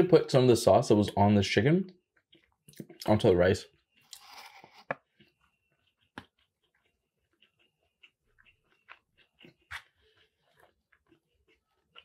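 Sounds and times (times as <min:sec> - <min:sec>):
close-up chewing: 0:02.1 - 0:03.0, 0:03.7 - 0:12.0.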